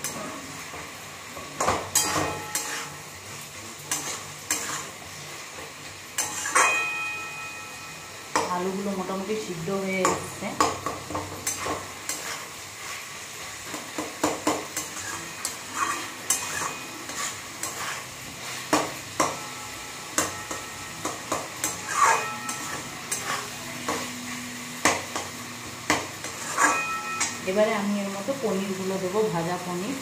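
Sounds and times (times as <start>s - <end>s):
frying sizzle: 0.0s - 30.0s
wooden spatula scraping metal pan: 1.9s - 3.0s, 3.9s - 5.0s, 11.4s - 13.1s, 13.7s - 18.9s, 21.6s - 24.1s, 26.2s - 27.5s.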